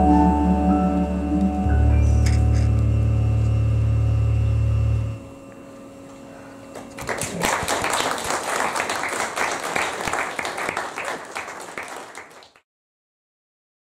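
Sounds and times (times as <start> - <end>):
held keyboard note: 0.0 - 6.4
audience applauding: 6.8 - 12.6.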